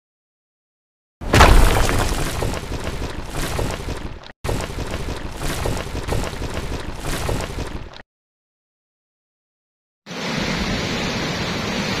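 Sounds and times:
rushing rumble of falling rubble: 1.2s - 3.8s.

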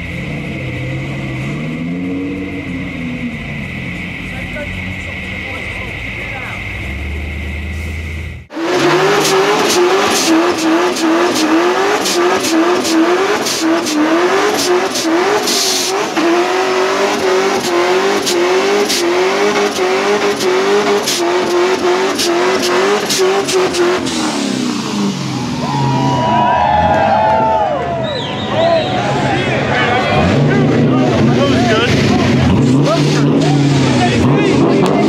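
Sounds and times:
car engine revving: 0.0s - 35.0s
tyres spinning on road: 8.5s - 35.0s.

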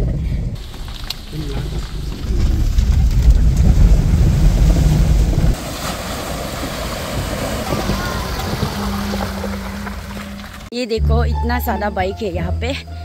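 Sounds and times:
wind rumble on microphone: 0.0s - 10.7s
car tyres splashing through water: 0.6s - 10.7s.

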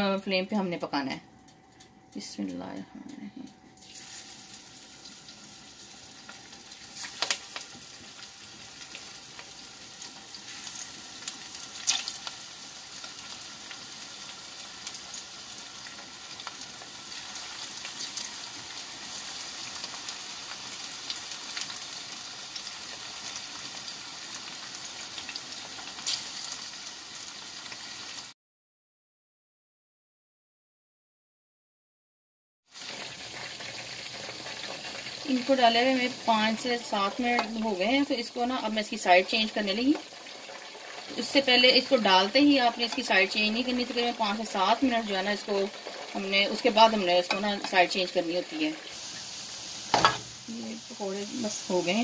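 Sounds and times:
food deep-frying in oil: 3.8s - 28.4s, 32.7s - 52.0s
sharp crackles: 10.7s - 12.4s.

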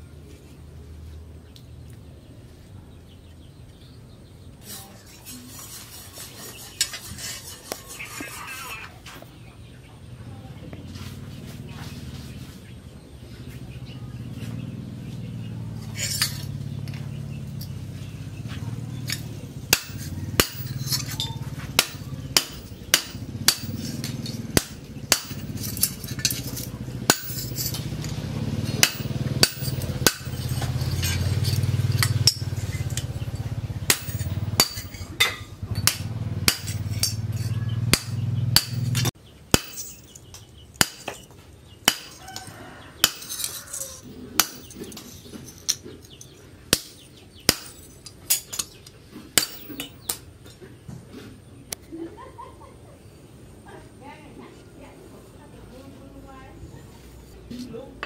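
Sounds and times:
hammer strikes on anvil: 19.1s - 27.8s, 28.7s - 33.1s, 33.8s - 42.2s, 43.0s - 43.4s, 44.4s - 44.8s, 46.7s - 48.6s, 49.4s - 50.2s.

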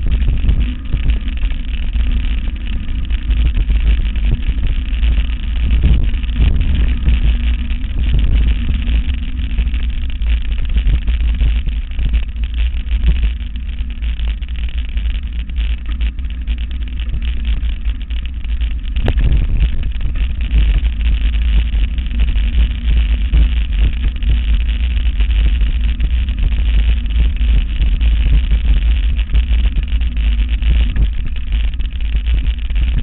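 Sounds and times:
bike rattling over dirt trail: 0.0s - 33.0s
wind rumbling on microphone: 0.0s - 33.0s.

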